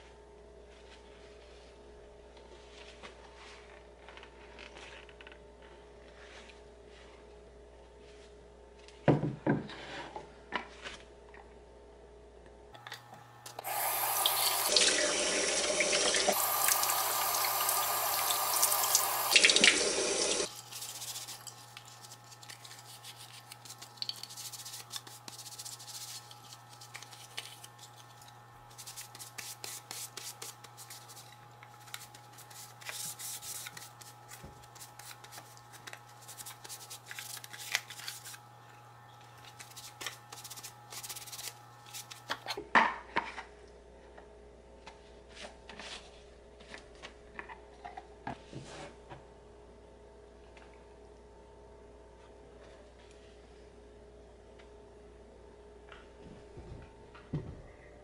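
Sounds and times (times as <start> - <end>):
tap water running into sink: 13.6 - 20.5.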